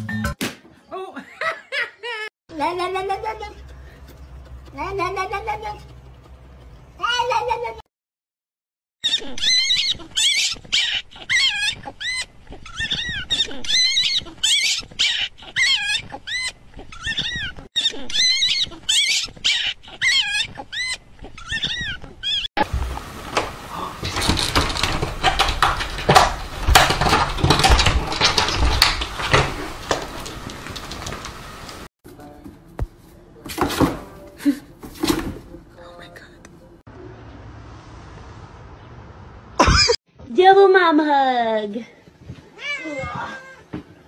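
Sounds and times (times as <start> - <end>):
knocks and clatter: 23.4 - 31.4.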